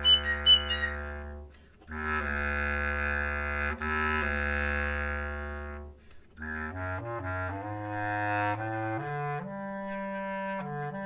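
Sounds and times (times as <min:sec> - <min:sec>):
flute and clarinet duo: 0:00.0 - 0:11.0.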